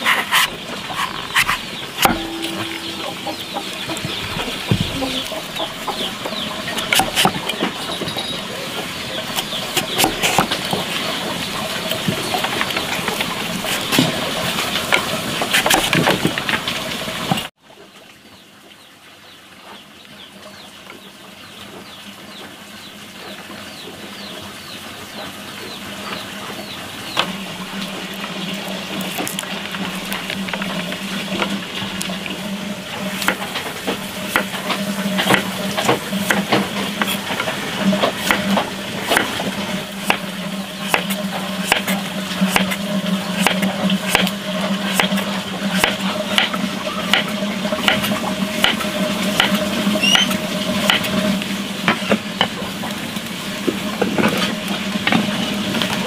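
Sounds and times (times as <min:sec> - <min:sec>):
cleaver scraping seeds: 0:00.0 - 0:04.2, 0:05.0 - 0:08.4, 0:09.2 - 0:16.2, 0:27.3 - 0:52.3
blade tapping wooden board: 0:49.4 - 0:51.1.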